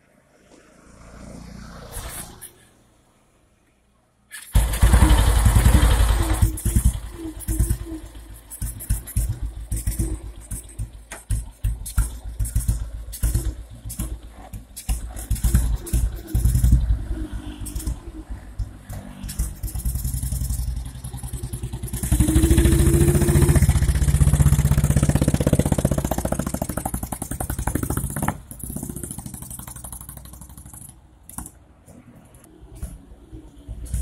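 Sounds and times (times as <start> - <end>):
motorcycle engine revving: 4.4 - 31.0.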